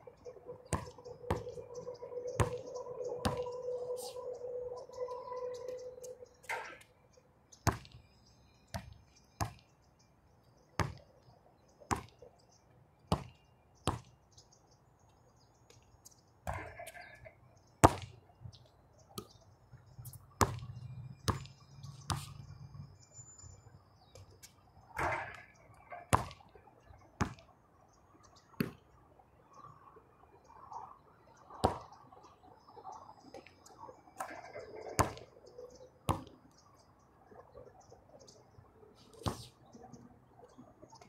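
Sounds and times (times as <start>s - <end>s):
basketball bouncing on hard court: 0.7s - 1.5s, 10.8s - 11.0s.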